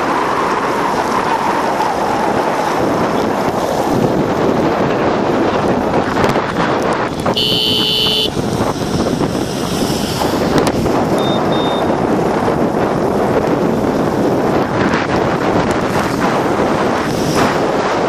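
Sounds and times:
road noise: 0.0s - 18.0s
wind rushing over microphone: 0.0s - 18.0s
vehicle horn toot: 7.3s - 8.3s, 11.2s - 11.9s
short high beeps: 7.4s - 8.3s, 11.2s - 11.9s.

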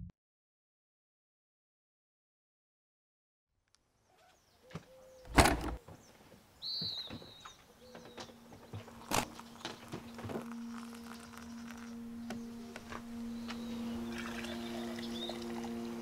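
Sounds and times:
bird chirp: 3.9s - 16.0s
low hum: 8.8s - 16.0s.

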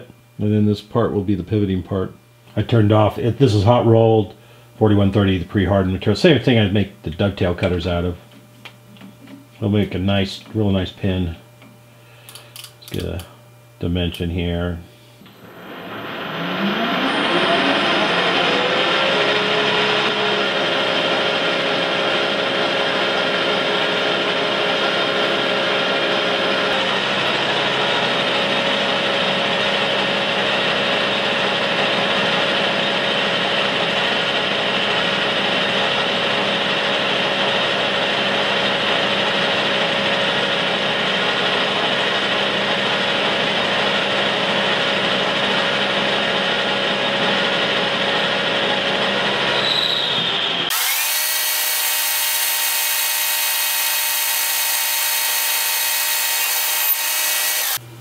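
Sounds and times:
metal lathe running: 50.7s - 57.8s.

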